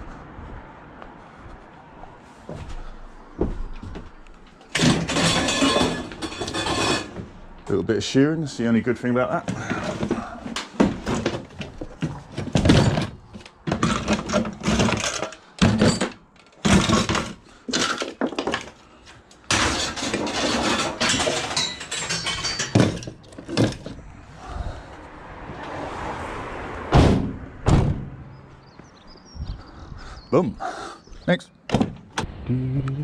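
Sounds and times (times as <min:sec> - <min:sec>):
heavy thuds: 0:02.5 - 0:04.2, 0:26.9 - 0:28.4
metal scraping and rattling: 0:04.6 - 0:07.6, 0:09.5 - 0:18.8, 0:19.4 - 0:24.0
scrap metal clattering: 0:04.7 - 0:07.3, 0:09.5 - 0:18.8, 0:19.5 - 0:24.0.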